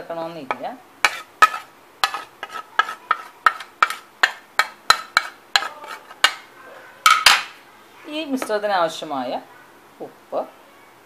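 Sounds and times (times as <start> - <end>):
spoon tapping on a plate: 2.8 - 6.4.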